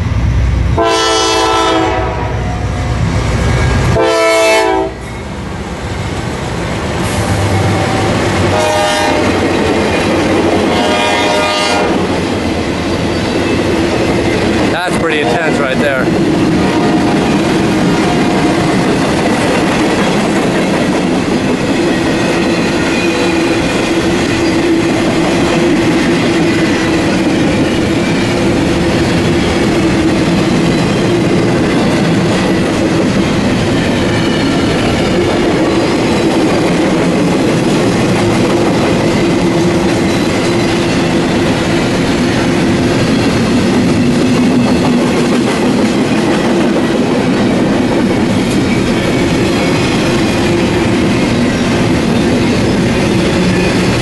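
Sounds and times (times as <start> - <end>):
freight train rumbling past: 0.0 - 54.0
wheels clickety-clack over rails: 12.0 - 54.0.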